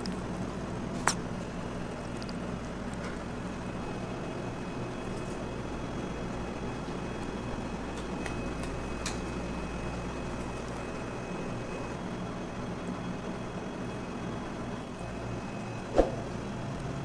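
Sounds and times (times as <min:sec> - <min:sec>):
kitchen background hum: 0:00.0 - 0:17.0.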